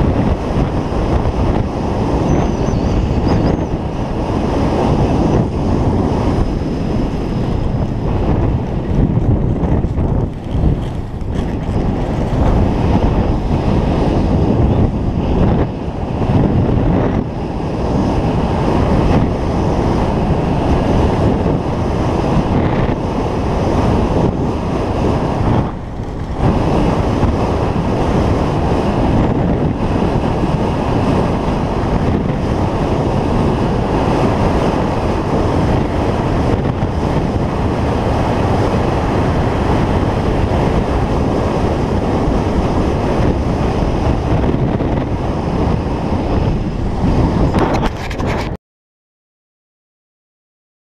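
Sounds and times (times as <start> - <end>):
wind rushing over microphone: 0.0 - 48.6
skis running over packed snow: 8.0 - 13.0.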